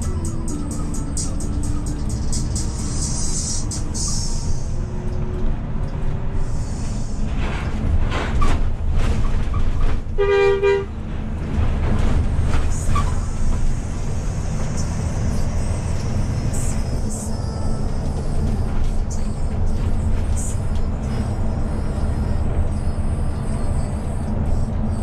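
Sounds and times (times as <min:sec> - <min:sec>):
coach engine and road rumble: 0:00.0 - 0:25.0
vehicle horn honk: 0:10.2 - 0:10.9.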